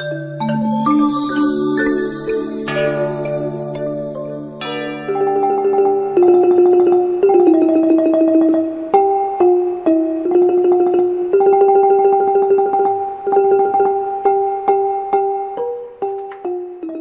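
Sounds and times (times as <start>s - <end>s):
melody of quick repeated strikes: 0.0s - 17.0s.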